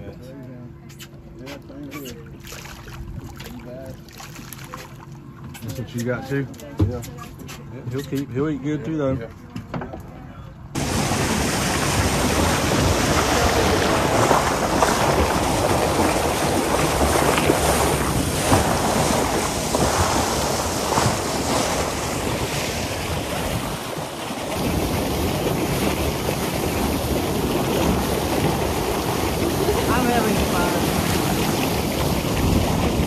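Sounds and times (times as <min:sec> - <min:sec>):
water spraying along boat hull: 0:10.8 - 0:33.0
wind rushing over microphone: 0:10.8 - 0:33.0.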